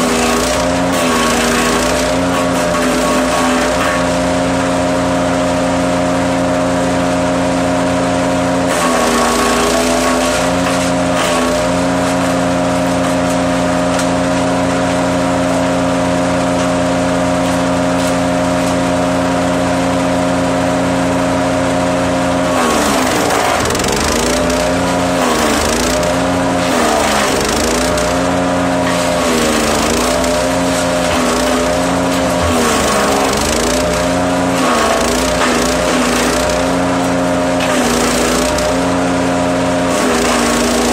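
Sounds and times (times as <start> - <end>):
wood chipping noise: 0.0 - 4.2, 8.7 - 15.0, 22.4 - 39.1, 39.7 - 40.9
wood chipper engine running: 0.0 - 40.9.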